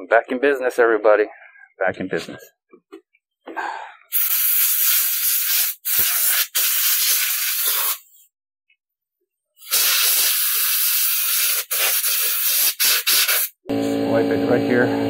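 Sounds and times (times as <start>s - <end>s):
aerosol spray can hissing: 4.1s - 8.2s, 9.6s - 13.6s.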